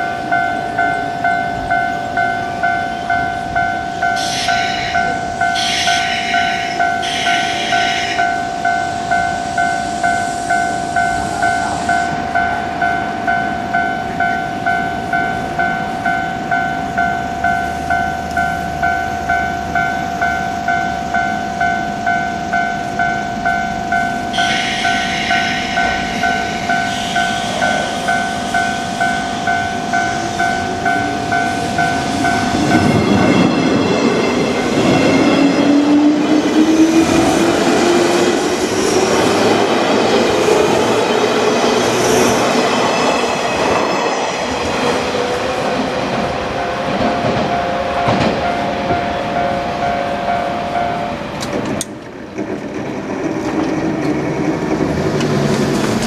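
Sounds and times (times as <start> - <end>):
level crossing bell ringing: 0.0 - 34.5, 46.5 - 51.2
wheels clattering on rails: 0.0 - 56.0
electric train motor whine: 17.4 - 49.5.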